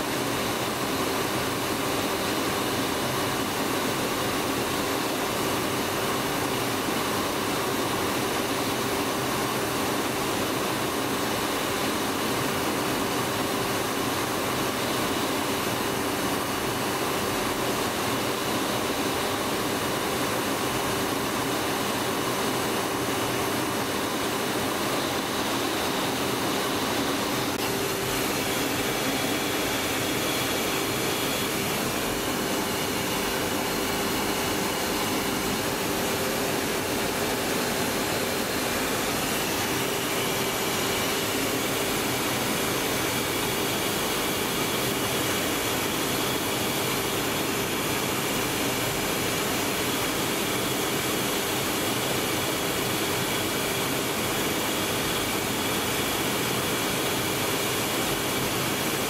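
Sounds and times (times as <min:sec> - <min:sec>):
steady hum: 0:10.3 - 0:59.0
jet engine roar: 0:12.1 - 0:59.0.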